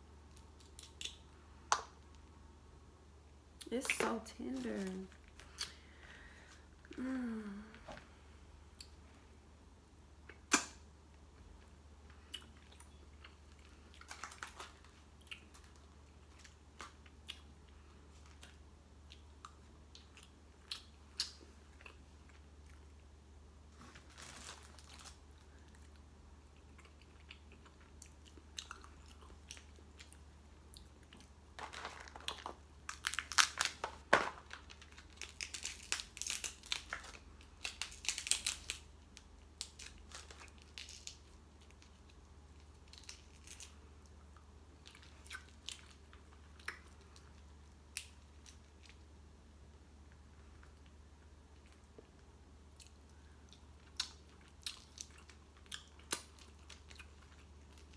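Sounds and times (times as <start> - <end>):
person chewing: 11.6 - 23.0, 25.5 - 31.4, 42.9 - 49.0, 52.7 - 57.9
food crackling pulled apart: 31.6 - 38.9.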